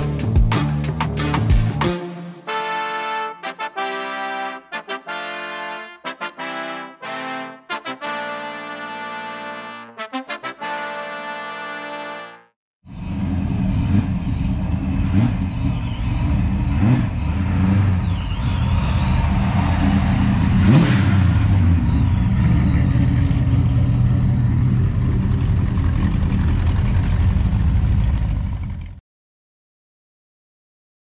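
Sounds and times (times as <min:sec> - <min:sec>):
car engine idling and revving: 0:12.9 - 0:29.0.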